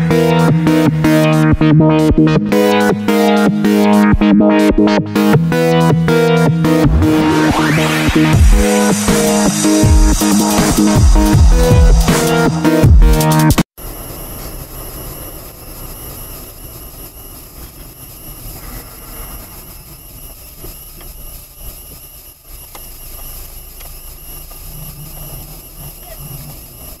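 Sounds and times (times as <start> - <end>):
car engine and tyre noise: 6.7 - 27.0.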